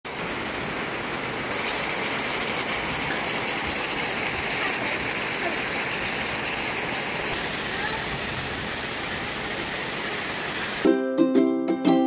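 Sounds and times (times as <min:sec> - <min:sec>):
stew bubbling and crackling: 0:00.1 - 0:07.4.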